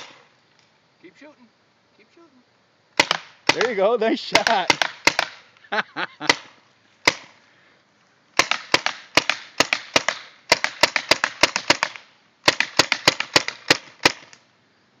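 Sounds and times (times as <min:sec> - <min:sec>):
paintball gun firing: 0:00.0 - 0:00.3, 0:03.0 - 0:05.4, 0:06.2 - 0:07.4, 0:08.4 - 0:14.4.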